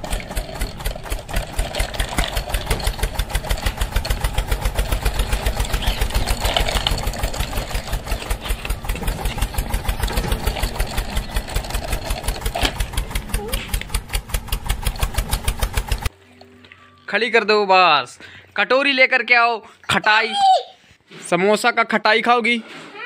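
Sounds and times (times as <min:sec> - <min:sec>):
toy tractor engine putt-putt: 0:00.0 - 0:16.1.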